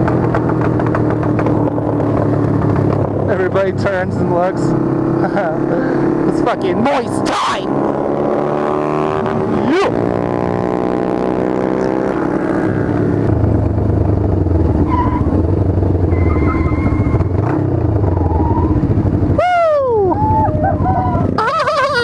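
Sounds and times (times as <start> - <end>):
motorcycle engine: 0.0 - 22.0
rumble of many motorcycles: 0.0 - 22.0
loud falling whoop: 19.4 - 21.5.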